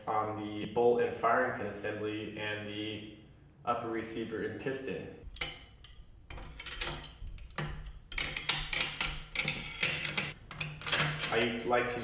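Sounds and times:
metallic clicks of rifle parts: 0:05.3 - 0:11.5.

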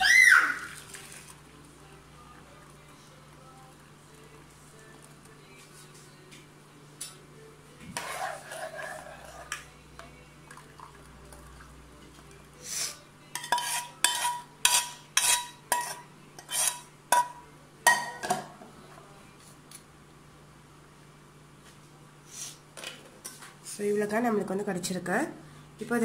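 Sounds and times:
syrup pouring into a strainer: 0:00.6 - 0:01.5
metal spoon scraping a saucepan: 0:08.0 - 0:09.8, 0:12.7 - 0:17.4.

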